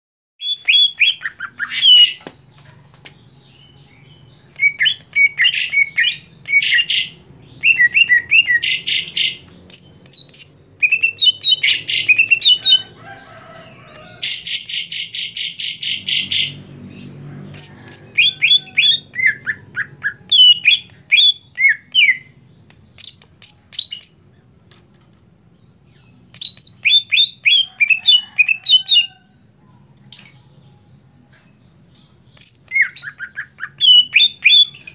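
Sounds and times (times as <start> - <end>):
bird singing chirps and whistles: 0.4 - 2.2, 4.3 - 12.8, 17.6 - 22.4, 23.0 - 24.3, 26.0 - 28.8, 32.3 - 34.9.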